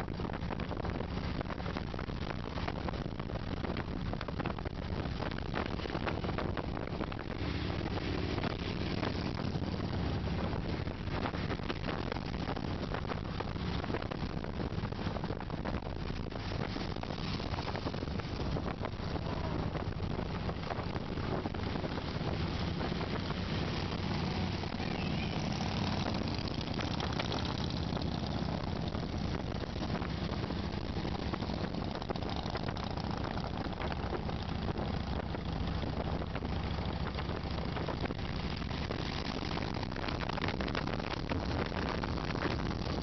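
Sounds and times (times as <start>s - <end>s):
wind buffeting microphone: 0.0s - 43.0s
motorcycle engines droning: 16.2s - 43.0s.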